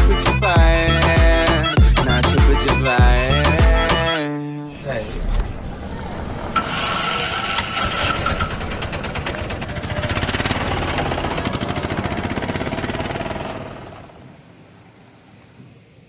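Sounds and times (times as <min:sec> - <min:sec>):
engine pulsing: 0:04.8 - 0:14.6.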